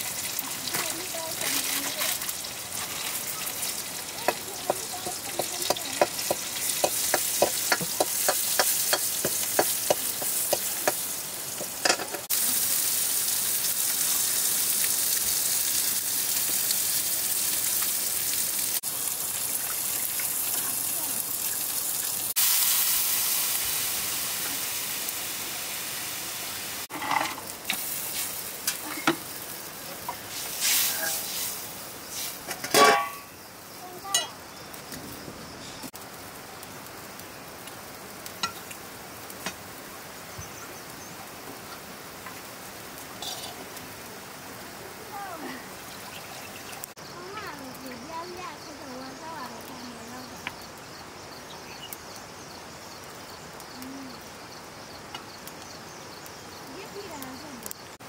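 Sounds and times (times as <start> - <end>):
greens sizzling in a wok: 0.0 - 58.0
metal ladle scraping a wok: 26.9 - 27.4, 30.1 - 33.3, 43.2 - 43.6.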